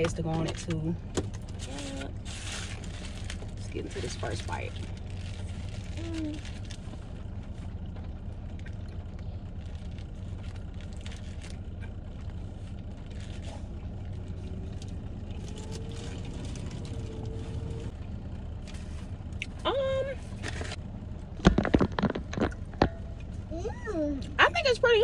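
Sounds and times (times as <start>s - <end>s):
car engine hum: 0.0s - 25.0s
foil wrapper crackling: 1.5s - 17.7s
biting and chewing: 4.8s - 18.0s.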